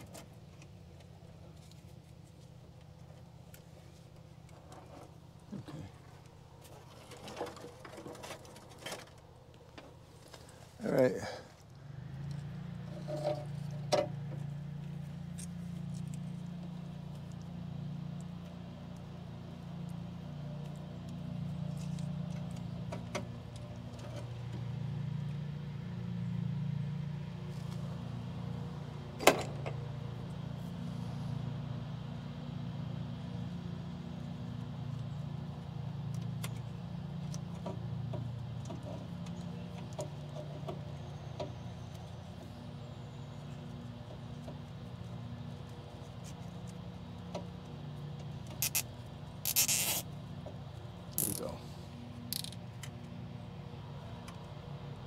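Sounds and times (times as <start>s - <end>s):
wires clicking and rustling: 43.8s - 50.1s.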